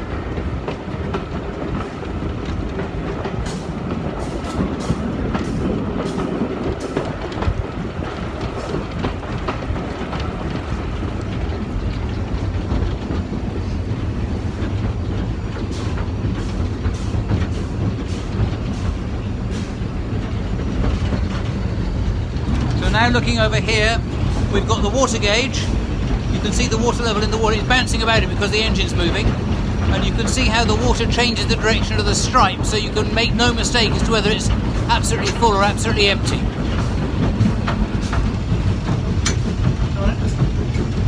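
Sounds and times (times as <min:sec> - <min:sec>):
steam locomotive rumbling: 0:00.0 - 0:41.0
wheels clicking over rail joints: 0:00.0 - 0:41.0.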